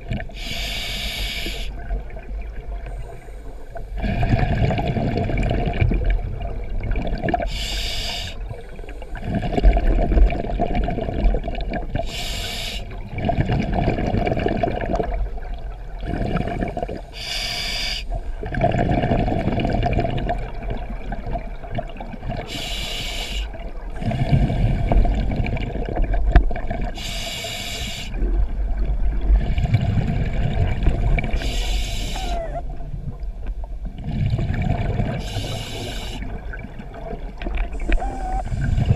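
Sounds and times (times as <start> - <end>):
exhaled bubbles rumbling: 0.0 - 0.4, 1.7 - 7.6, 8.4 - 12.2, 12.9 - 17.2, 18.1 - 22.6, 23.5 - 27.0, 28.1 - 38.9
regulator inhale hiss: 0.3 - 1.8, 7.5 - 9.3, 12.1 - 13.0, 17.1 - 18.2, 22.5 - 25.0, 27.0 - 28.2, 31.4 - 32.4, 35.2 - 36.4.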